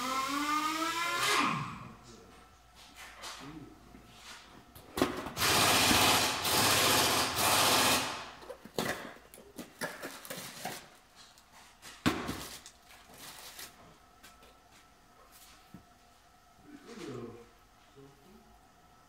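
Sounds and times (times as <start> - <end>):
power tool running: 0.0 - 1.8, 5.4 - 8.4.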